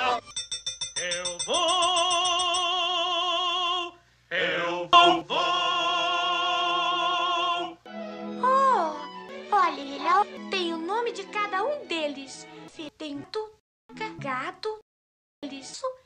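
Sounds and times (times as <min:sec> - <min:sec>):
operatic singing voice: 0:01.0 - 0:07.8.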